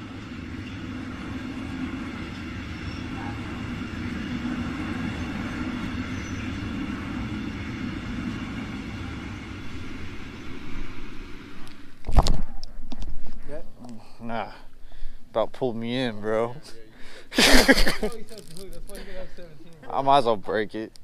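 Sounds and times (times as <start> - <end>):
freight train rumbling across bridge: 0.0 - 12.0.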